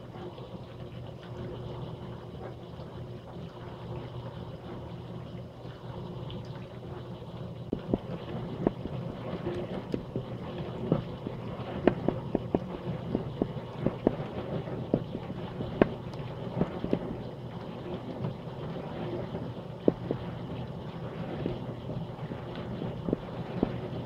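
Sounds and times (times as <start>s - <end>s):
dishwasher pump hum: 0.0s - 24.0s
water spraying and sloshing: 0.0s - 24.0s
sharp ticks and knocks: 14.9s - 17.1s.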